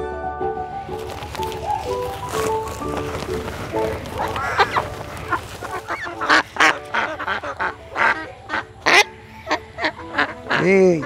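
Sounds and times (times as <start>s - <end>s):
ducks quacking: 2.9s - 11.0s.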